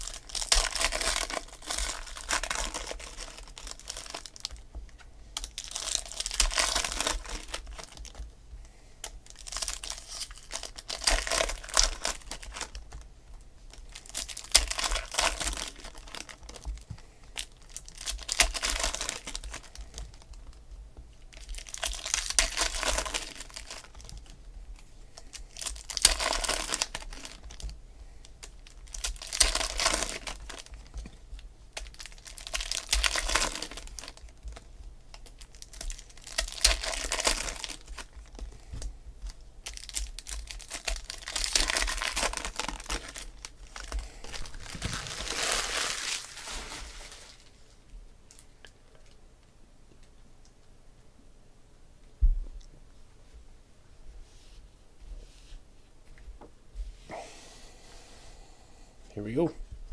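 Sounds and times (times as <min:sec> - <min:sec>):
trading cards rustling and clicking: 0:39.8 - 0:47.5.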